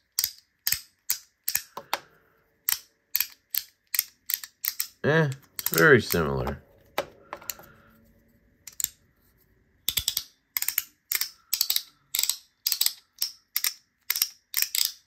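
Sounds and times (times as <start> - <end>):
plastic fidget clicking: 0.0 - 2.0, 2.6 - 6.6, 8.6 - 9.0, 9.8 - 15.0.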